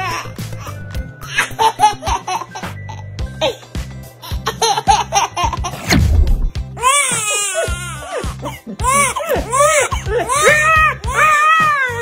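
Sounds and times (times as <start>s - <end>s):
background music with steady beat: 0.0s - 12.0s
baby laughing: 4.4s - 5.8s.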